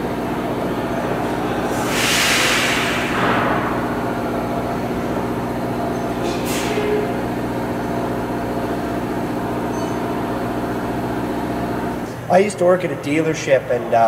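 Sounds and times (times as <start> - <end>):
machine humming: 0.0 - 13.7
short hiss: 1.7 - 3.6.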